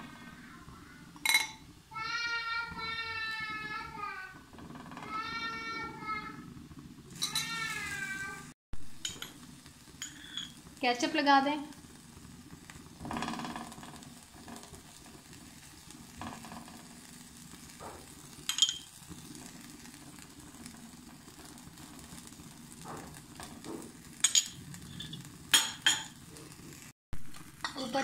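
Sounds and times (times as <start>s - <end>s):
flatbread sizzling in frying pan: 0.0s - 28.0s
spoon scraping in pan: 7.1s - 7.7s, 9.0s - 10.7s, 13.6s - 28.0s
spoon clinking against pan: 18.5s - 18.9s.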